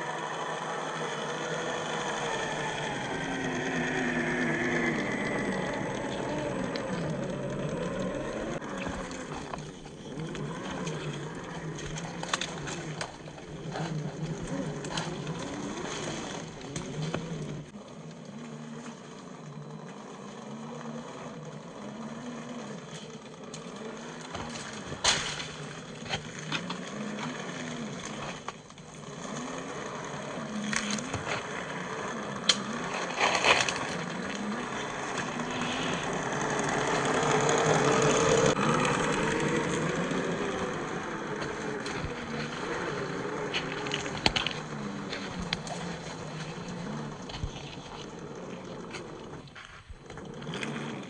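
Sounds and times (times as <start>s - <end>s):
electric motor and gears whining: 0.0s - 51.0s.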